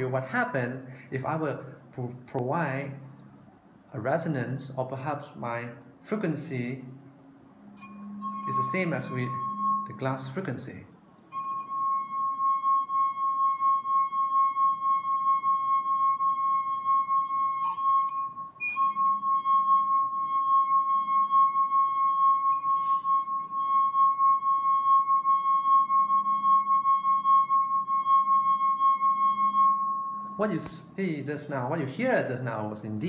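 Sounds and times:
wineglass rim ringing tone: 7.6s - 31.0s.

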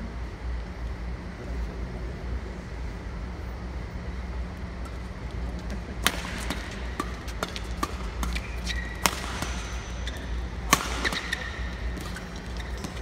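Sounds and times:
low hall hum: 0.0s - 13.0s
racket striking shuttlecock: 6.0s - 13.0s
shoes squeaking on court: 6.3s - 13.0s.

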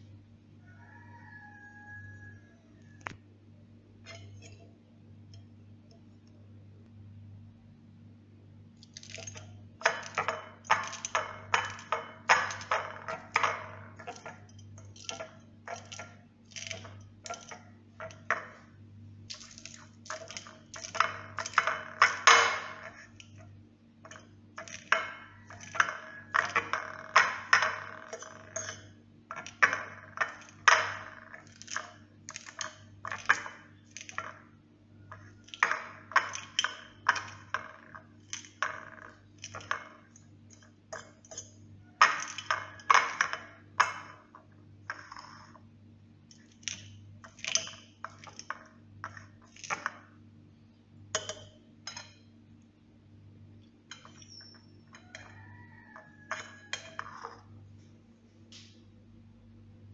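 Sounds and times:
low steady hum: 0.0s - 59.9s
metal spoon tapping ceramic plate: 9.0s - 34.4s, 35.1s - 37.7s, 38.3s - 44.4s, 51.2s - 52.3s, 53.9s - 57.4s.

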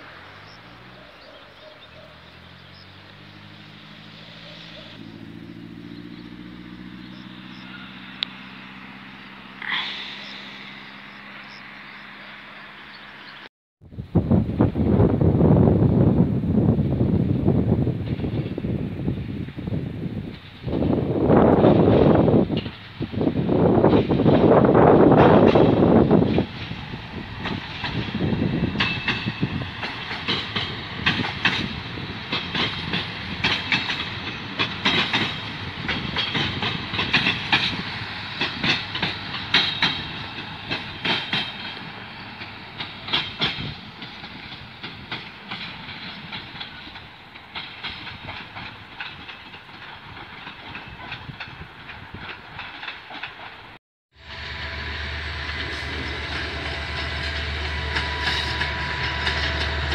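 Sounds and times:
train rumble: 0.0s - 59.9s
train wheels clicking over rail joints: 17.9s - 59.9s.

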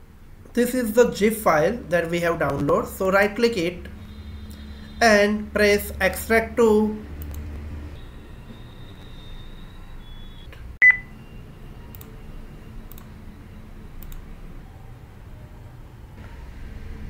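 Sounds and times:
short electronic beep: 8.0s - 11.5s.

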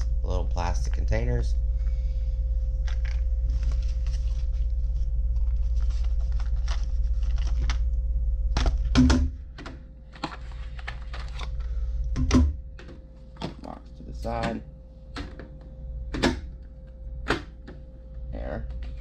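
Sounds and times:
low hum: 0.0s - 19.0s
cardboard rustling: 3.0s - 7.8s
plastic cases clicking and rattling: 8.6s - 11.6s.

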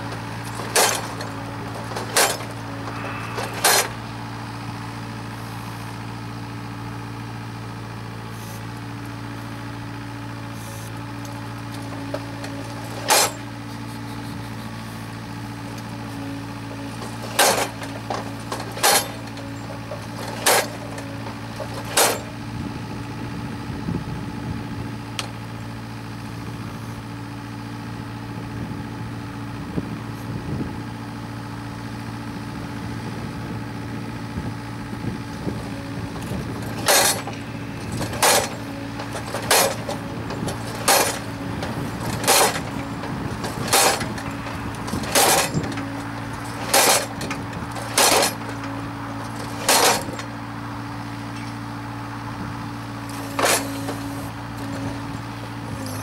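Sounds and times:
excavator engine running: 0.0s - 56.0s
post driver hammer blows: 0.4s - 4.1s, 17.2s - 21.0s, 36.6s - 50.3s.

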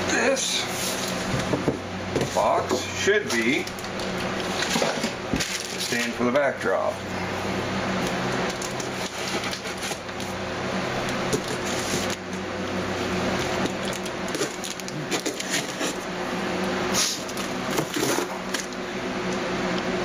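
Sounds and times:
knife slitting packing tape: 13.6s - 16.0s, 16.9s - 18.7s.

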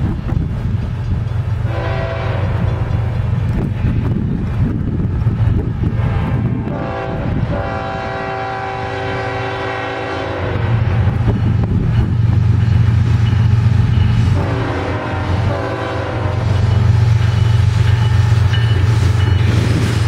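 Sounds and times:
low train rumble: 0.0s - 20.0s
locomotive air horn blasts: 1.6s - 2.9s, 6.0s - 11.1s, 14.2s - 16.9s.

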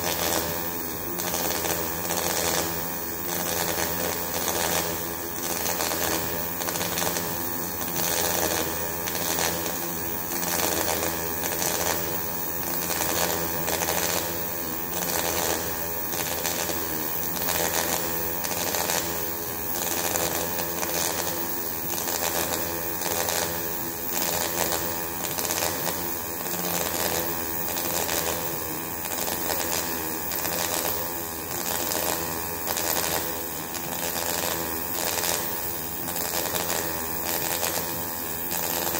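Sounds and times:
welding arc crackling: 0.0s - 38.9s.

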